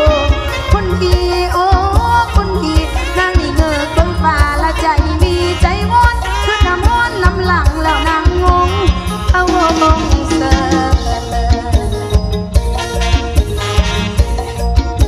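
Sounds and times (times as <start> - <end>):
woman singing: 0.0 - 12.0
steady drum beat: 5.6 - 15.0.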